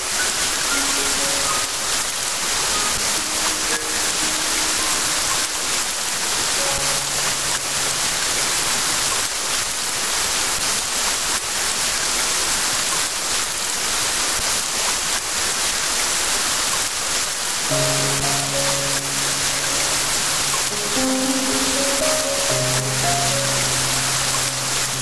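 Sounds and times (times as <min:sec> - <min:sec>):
rain falling: 0:00.0 - 0:25.0.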